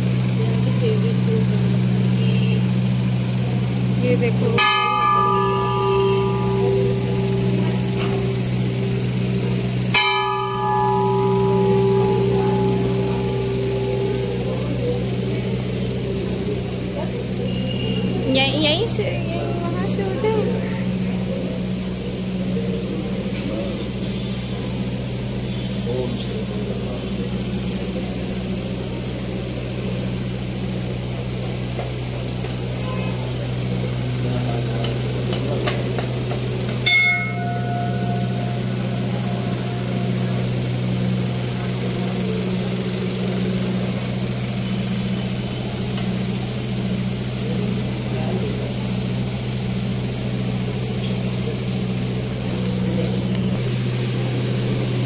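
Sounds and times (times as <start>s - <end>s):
steady low hum: 0.0s - 55.0s
metal bell strike: 4.4s - 30.2s, 33.6s - 47.8s.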